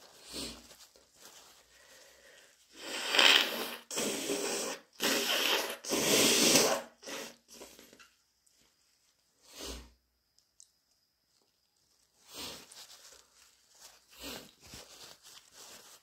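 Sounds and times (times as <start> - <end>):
person blowing congested nose: 0.2 - 0.7, 1.8 - 7.9, 9.4 - 10.0, 12.2 - 12.7, 14.1 - 14.6.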